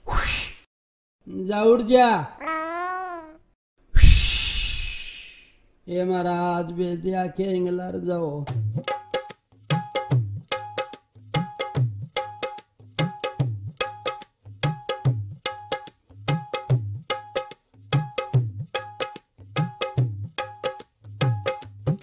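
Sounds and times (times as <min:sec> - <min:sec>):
fast hand-drum rhythm: 0:08.5 - 0:22.0.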